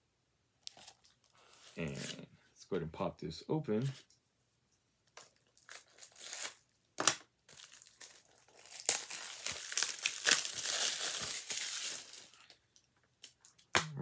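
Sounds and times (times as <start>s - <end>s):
plastic wrap tearing and crinkling: 5.1s - 6.7s, 7.5s - 12.6s.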